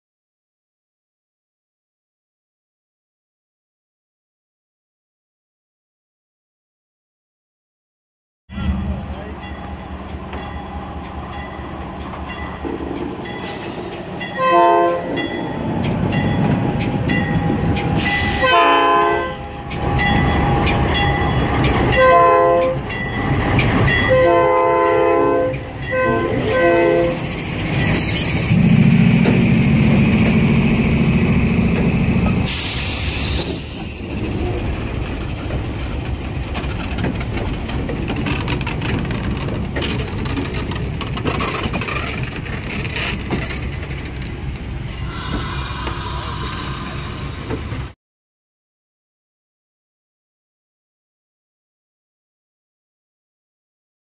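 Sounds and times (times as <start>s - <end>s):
moving train noise: 8.5s - 48.0s
locomotive air horn blasts: 14.3s - 15.2s, 18.0s - 19.7s, 21.9s - 22.9s, 24.1s - 27.2s, 44.9s - 47.4s.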